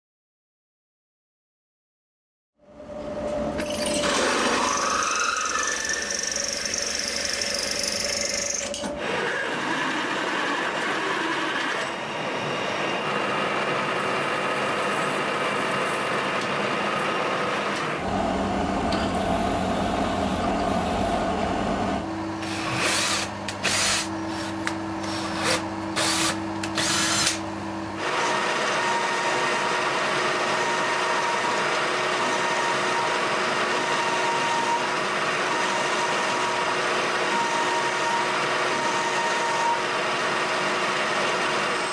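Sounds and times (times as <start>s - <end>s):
machine tool humming: 2.8s - 41.9s
drill press grinding metal: 3.6s - 12.3s, 22.4s - 41.9s
sharp drilling bursts: 4.1s - 11.8s, 22.4s - 27.4s.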